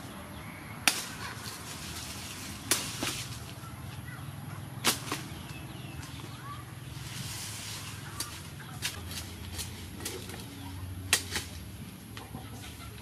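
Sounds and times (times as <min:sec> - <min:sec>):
cleaver chopping sugar cane: 0:00.8 - 0:03.6, 0:04.8 - 0:05.6, 0:11.1 - 0:11.6.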